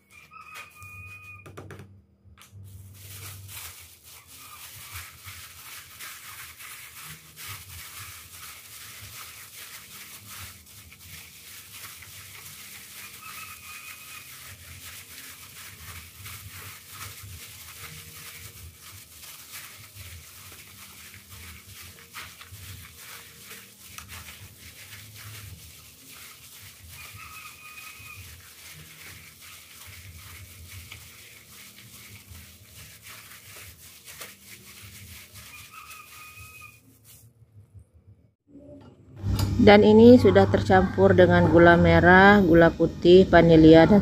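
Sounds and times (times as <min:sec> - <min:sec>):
plastic bag crinkling and rustling: 0:02.6 - 0:37.3.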